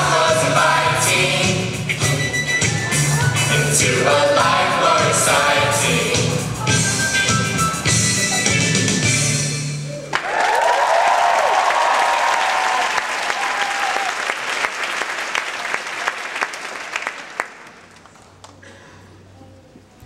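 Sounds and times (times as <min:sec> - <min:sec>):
dance music: 0:00.0 - 0:09.4
whooping shouts: 0:10.1 - 0:14.2
audience applause: 0:10.1 - 0:18.6.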